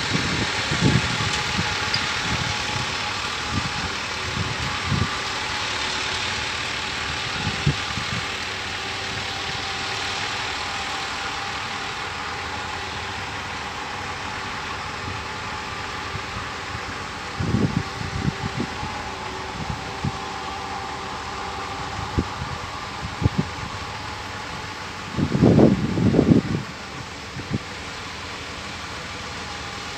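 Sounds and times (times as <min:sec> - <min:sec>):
diesel excavator engine idling: 0:00.0 - 0:29.9.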